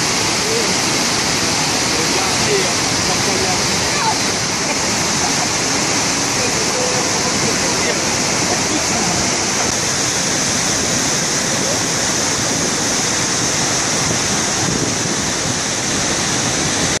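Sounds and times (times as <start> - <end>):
waterfall roaring: 0.0 - 17.0.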